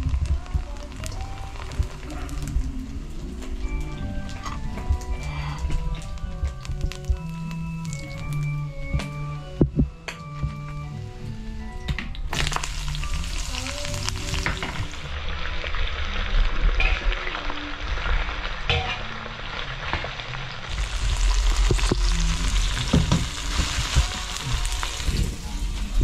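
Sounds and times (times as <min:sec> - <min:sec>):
vegetables sizzling in oil: 0:00.0 - 0:04.7, 0:12.2 - 0:26.0.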